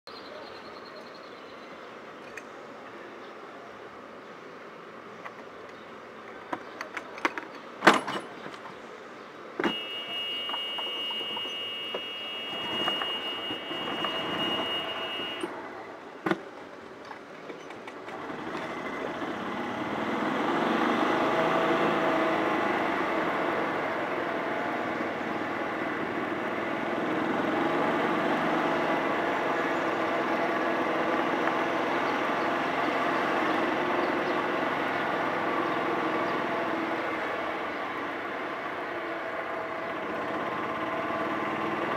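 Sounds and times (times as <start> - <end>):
vehicle driving slowly: 8.4 - 41.9
high steady tone: 9.7 - 15.5.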